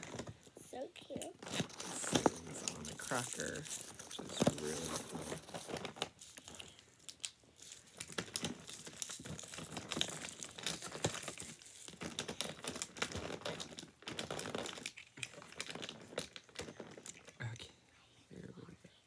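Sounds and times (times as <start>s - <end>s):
wrappers crinkling and tearing: 0.0s - 17.7s.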